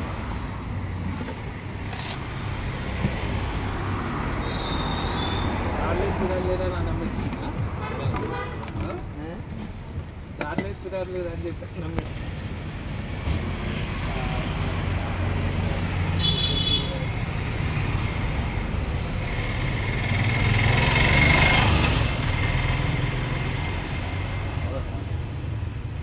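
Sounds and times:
traffic rumble: 0.0s - 26.0s
vehicle passing: 17.4s - 24.1s.

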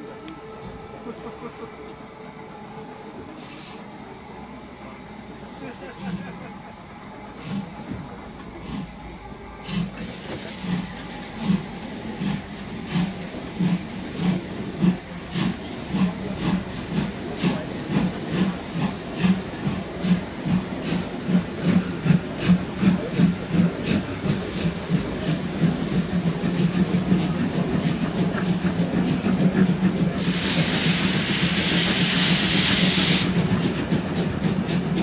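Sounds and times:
steam locomotive chuffing: 3.0s - 35.0s
steam hissing: 3.2s - 4.1s, 7.2s - 7.9s, 9.6s - 35.0s.

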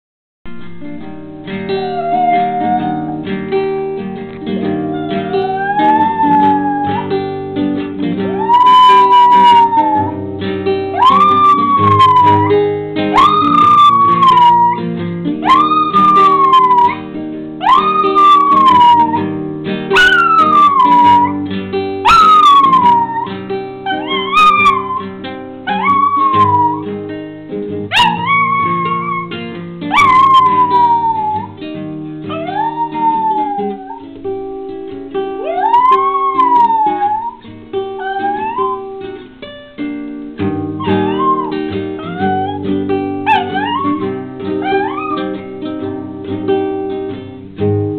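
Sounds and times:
plucked acoustic guitar: 0.5s - 47.9s
puppy howling: 1.7s - 3.2s, 4.6s - 7.4s, 8.3s - 10.2s, 10.9s - 14.8s, 15.4s - 17.0s, 17.6s - 19.3s, 19.9s - 21.4s, 22.0s - 26.9s, 27.9s - 31.6s, 32.2s - 34.2s, 35.4s - 39.1s, 40.8s - 45.5s.

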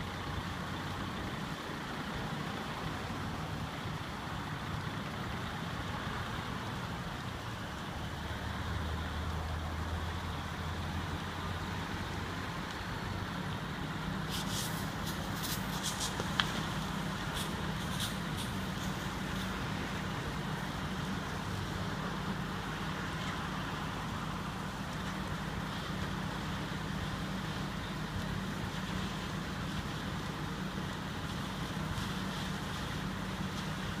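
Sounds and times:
engines idling: 0.0s - 34.0s
road traffic: 0.0s - 34.0s.

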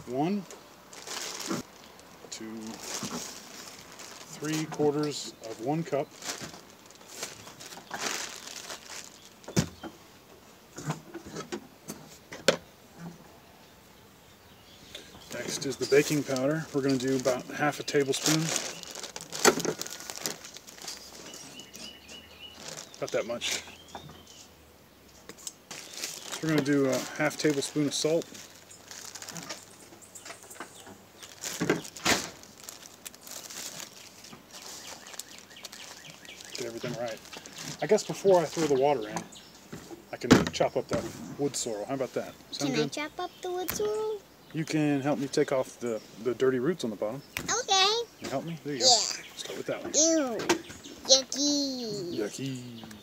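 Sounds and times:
plastic bag crinkling: 0.9s - 9.7s, 15.3s - 23.6s, 25.7s - 29.8s, 31.2s - 38.8s.

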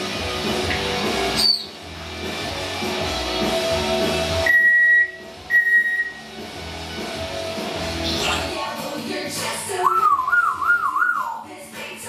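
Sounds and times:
guitar music: 0.0s - 9.2s
parrot whistling: 1.3s - 1.8s, 4.4s - 6.2s, 9.8s - 11.4s.

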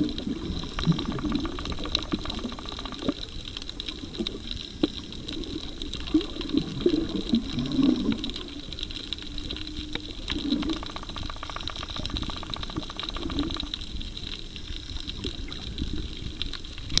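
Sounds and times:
muffled underwater sloshing: 0.0s - 17.0s
sharp clicks: 0.6s - 4.9s, 9.1s - 14.4s.

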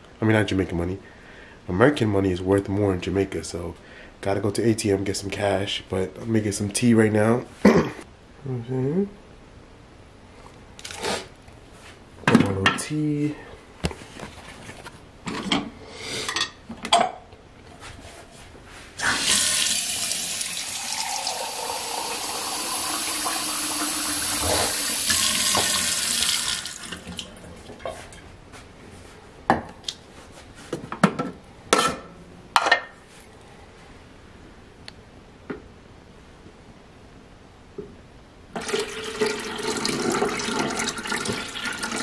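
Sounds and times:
water running from a tap: 19.0s - 27.2s, 38.6s - 42.0s.

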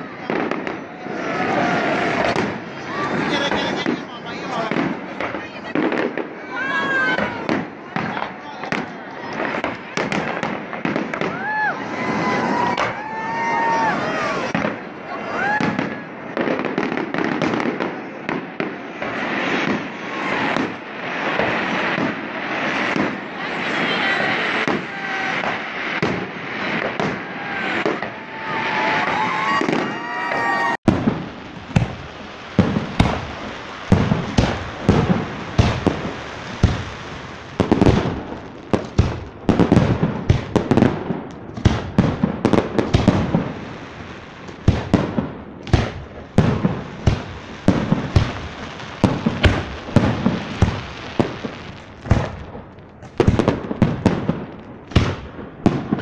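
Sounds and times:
fireworks bursting: 0.0s - 56.0s
rapid bangs and crackles: 30.9s - 56.0s.

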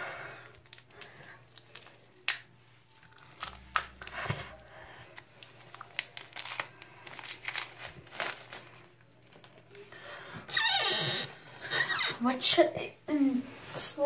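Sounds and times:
wrapping crinkling: 0.4s - 9.9s.

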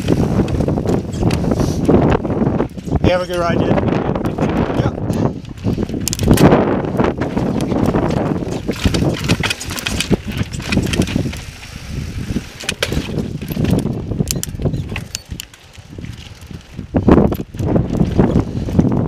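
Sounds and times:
bike rattling: 0.0s - 19.0s
bike tyres rumbling over rock: 0.0s - 19.0s
sharp clicks and knocks: 5.9s - 6.6s.

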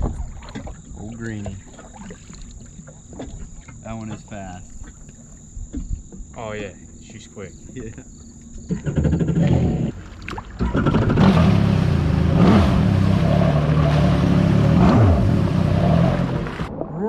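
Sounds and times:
jet ski engine running hard: 6.4s - 10.0s, 10.6s - 16.7s.

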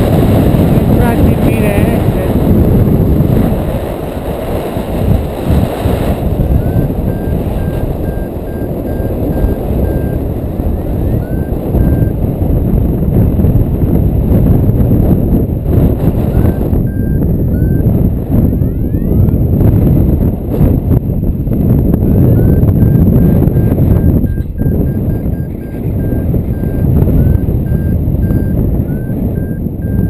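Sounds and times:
wind buffeting microphone: 0.0s - 30.0s
variometer beeping: 6.4s - 12.3s, 15.8s - 19.4s, 22.0s - 30.0s.

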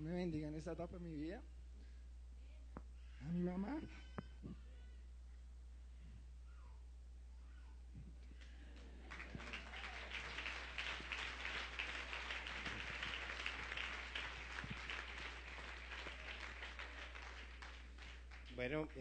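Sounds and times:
low electrical hum: 0.0s - 19.0s
audience applauding: 8.8s - 19.0s.

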